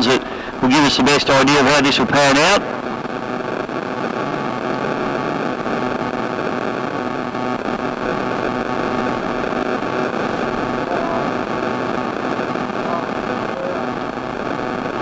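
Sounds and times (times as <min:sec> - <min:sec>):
distant outboard motors droning: 0:00.0 - 0:15.0
noisy hiss: 0:00.0 - 0:15.0.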